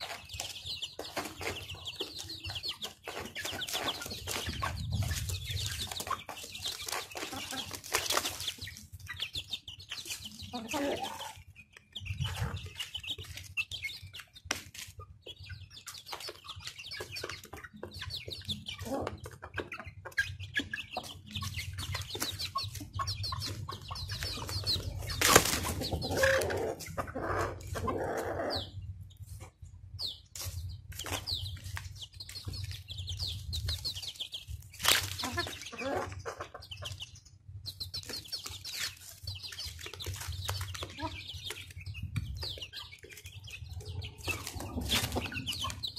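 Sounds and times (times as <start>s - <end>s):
beaks pecking on cardboard: 0.0s - 10.8s, 37.8s - 43.5s
chickens clucking: 0.0s - 45.9s.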